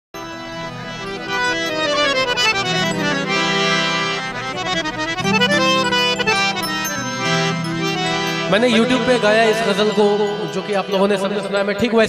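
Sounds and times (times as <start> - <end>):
harmonium playing: 0.2 - 12.0.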